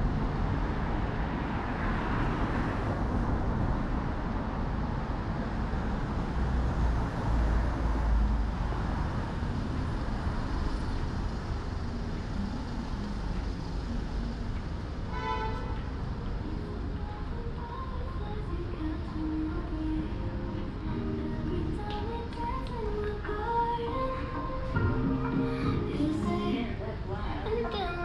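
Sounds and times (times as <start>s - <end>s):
traffic hum: 0.0s - 28.0s
vehicle engine rumble passing: 0.0s - 28.0s
short horn toot: 15.1s - 15.8s.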